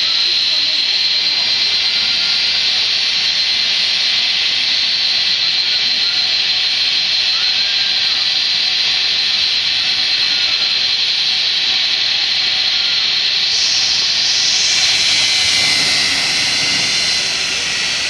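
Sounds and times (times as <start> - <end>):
jet engines whining: 13.4 - 18.0.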